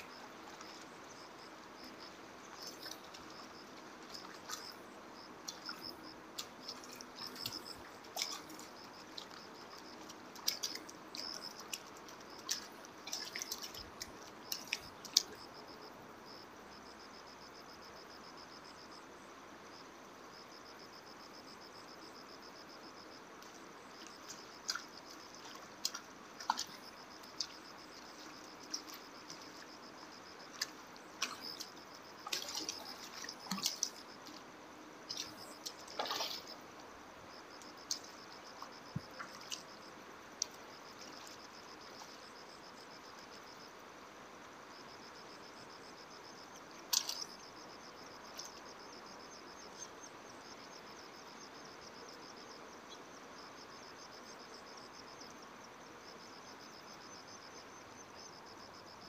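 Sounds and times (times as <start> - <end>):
water splashes and drips: 0.0 - 15.7, 23.4 - 43.4, 46.5 - 48.9
insects chirring: 0.0 - 59.0.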